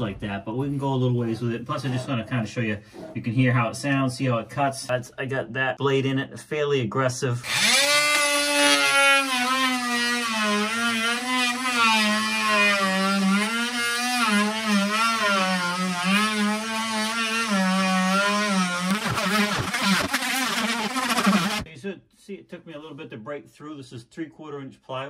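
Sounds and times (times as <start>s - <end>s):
oscillating tool cutting plywood: 7.4s - 21.7s.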